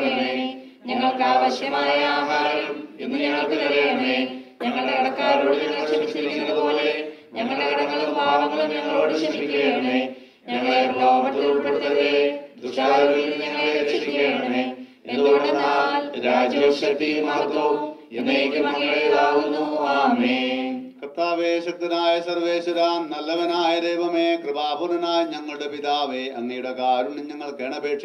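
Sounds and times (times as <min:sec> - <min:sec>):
group chanting a prayer: 0:00.0 - 0:21.1.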